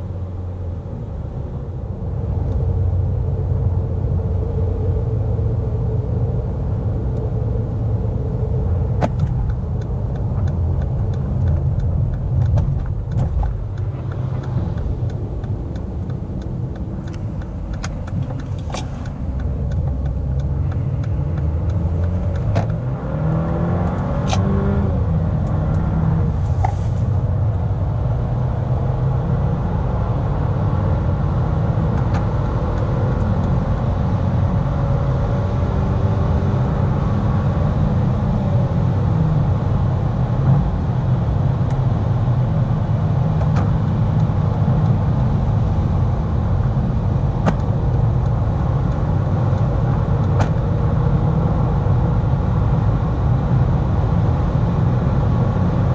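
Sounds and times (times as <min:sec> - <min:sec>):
car engine accelerating: 0:02.2 - 0:55.9
tyre and road rumble: 0:08.3 - 0:28.4.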